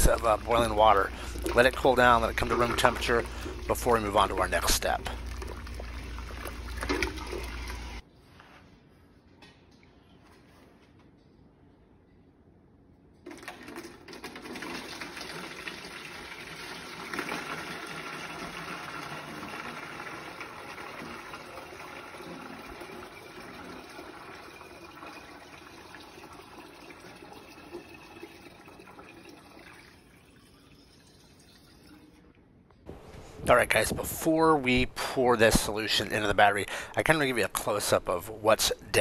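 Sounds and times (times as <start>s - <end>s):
liquid pouring through a funnel: 0.0s - 8.0s, 13.3s - 32.3s.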